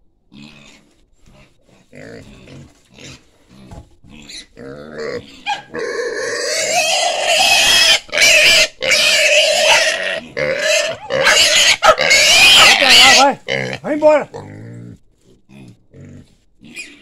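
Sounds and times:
piglet squealing: 4.2s - 13.8s, 16.6s - 17.0s.

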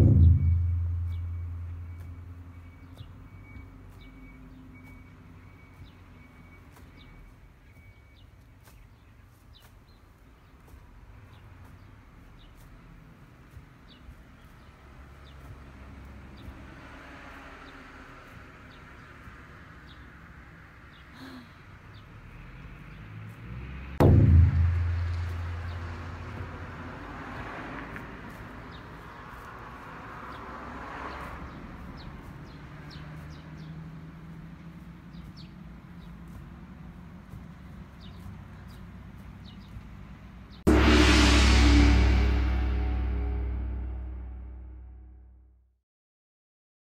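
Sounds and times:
faint low rumble: 0.0s - 2.8s, 24.0s - 26.7s, 40.7s - 45.4s
loud burst of noise: 24.0s - 26.3s, 40.7s - 44.9s.

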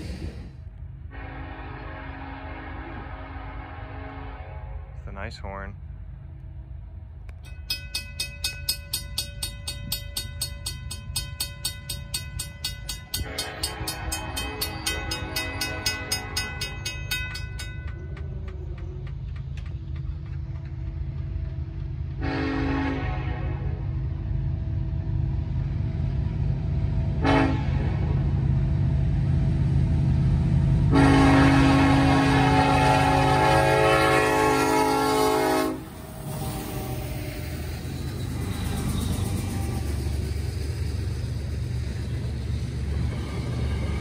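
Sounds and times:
low train rumble: 0.0s - 44.0s
locomotive air horn: 1.1s - 5.0s, 13.2s - 16.5s, 22.2s - 23.8s, 27.2s - 28.0s, 30.9s - 37.6s
crossing bell ringing: 7.4s - 18.5s.

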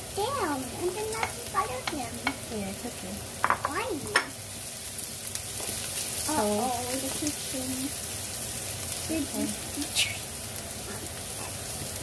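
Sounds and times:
onion sizzling in frying pan: 0.0s - 12.0s.

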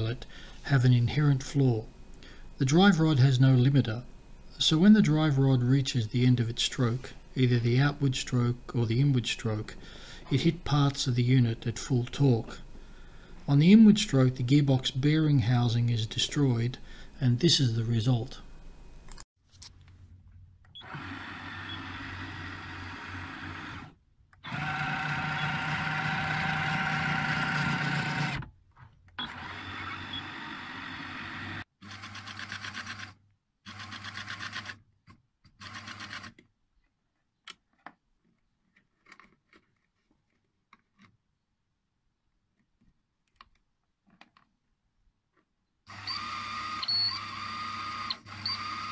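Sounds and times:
electric motor whine: 20.8s - 28.4s, 29.2s - 31.6s.

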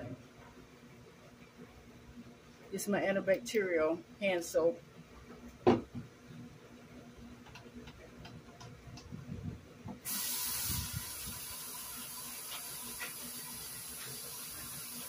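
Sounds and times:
faucet water running into sink: 10.1s - 15.0s.

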